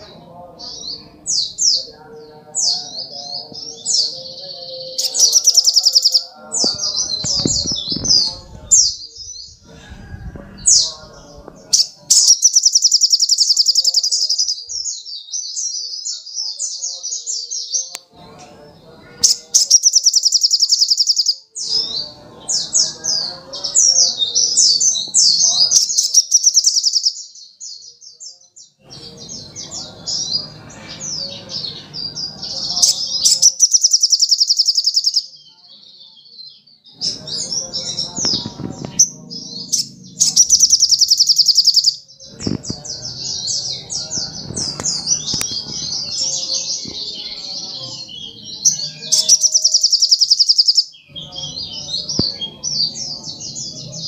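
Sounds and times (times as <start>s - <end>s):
bird trilling and twittering: 0.0s - 18.0s, 19.1s - 54.0s.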